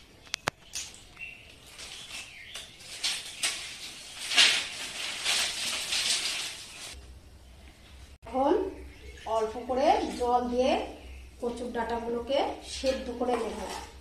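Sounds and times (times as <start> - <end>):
dry sticks rustling and clattering: 0.2 - 7.0.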